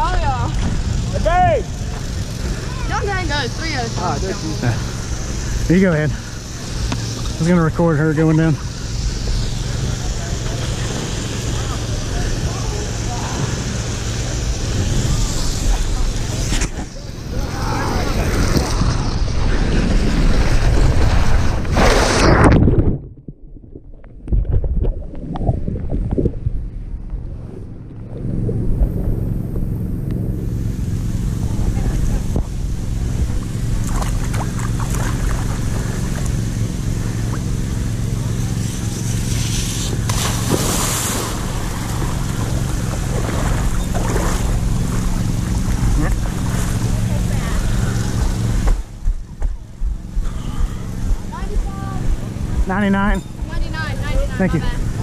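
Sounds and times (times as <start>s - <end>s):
rushing noise: 0.0s - 22.8s
constant hum: 0.0s - 55.0s
low rumble: 0.0s - 55.0s
wind buffeting microphone: 8.5s - 38.2s.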